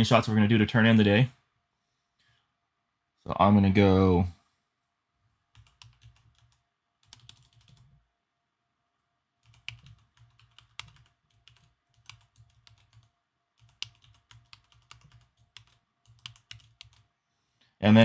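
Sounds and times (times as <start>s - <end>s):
typing on computer keyboard: 5.5s - 7.9s, 9.4s - 17.1s.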